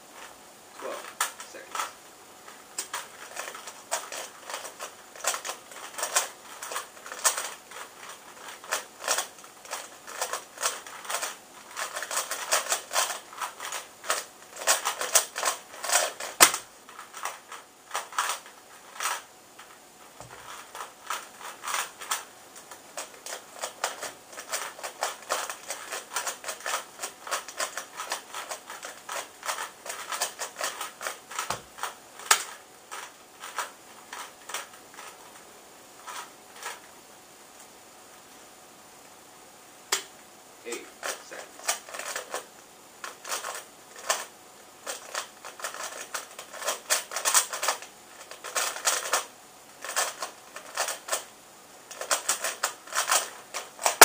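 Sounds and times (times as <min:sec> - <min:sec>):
plastic puzzle cube clacking: 0:02.8 - 0:19.7, 0:20.3 - 0:35.2, 0:41.0 - 0:51.3, 0:51.9 - 0:54.0.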